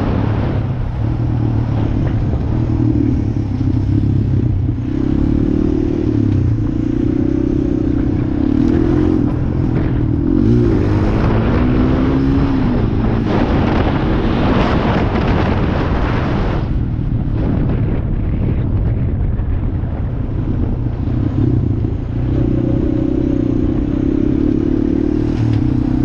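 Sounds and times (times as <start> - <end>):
loud rushing noise: 0.0 - 21.1
quad bike engine running: 0.0 - 26.0.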